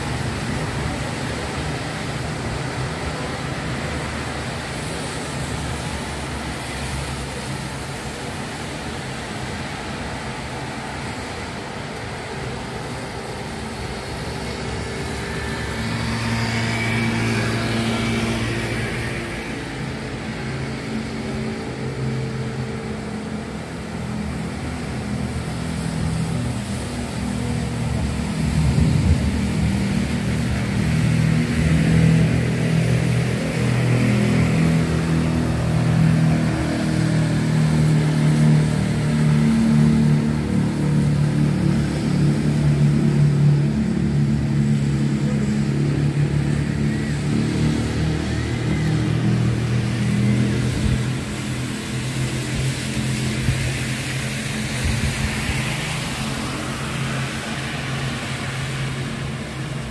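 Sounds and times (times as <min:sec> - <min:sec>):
road traffic on wet street: 0:00.0 - 0:59.9.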